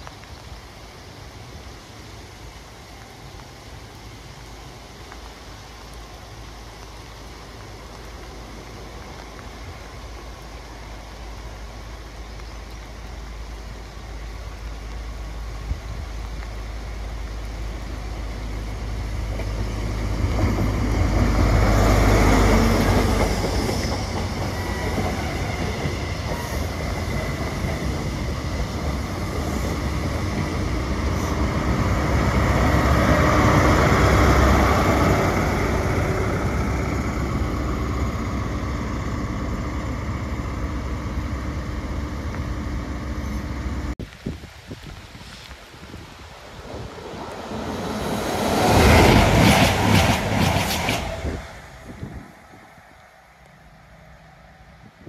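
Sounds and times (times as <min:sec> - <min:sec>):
passenger train rumbling: 0:00.0 - 0:44.0, 0:44.9 - 0:55.0
wind buffeting microphone: 0:44.0 - 0:53.0.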